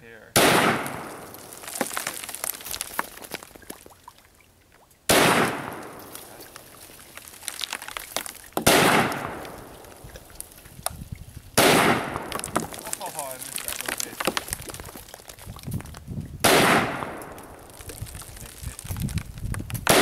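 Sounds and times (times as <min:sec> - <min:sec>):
rifle shots echoing: 0:00.4 - 0:01.6, 0:05.1 - 0:06.4, 0:08.6 - 0:10.0, 0:11.6 - 0:12.5, 0:16.4 - 0:17.7.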